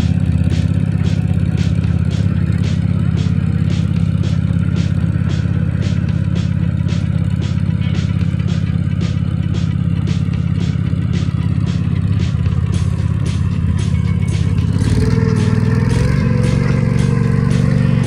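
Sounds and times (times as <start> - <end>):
small engine running under load: 0.0 - 18.0.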